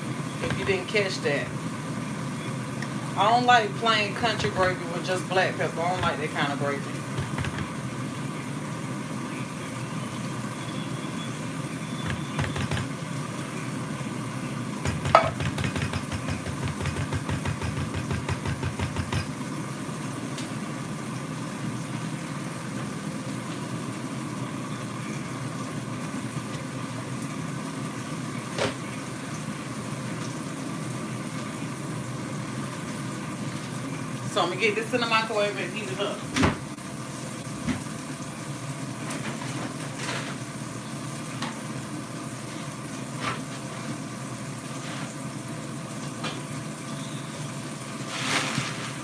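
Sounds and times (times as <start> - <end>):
low mechanical hum: 0.0 - 49.0
metal spoon knocking in a can: 14.9 - 19.3.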